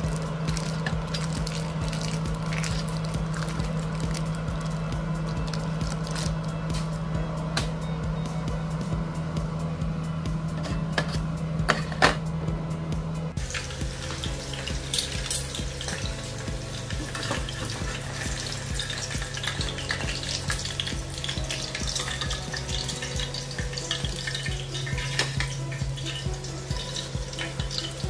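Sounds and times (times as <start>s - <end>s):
egg sizzling in oil: 0.0s - 7.0s, 13.4s - 28.0s
background music with beat: 0.0s - 28.0s.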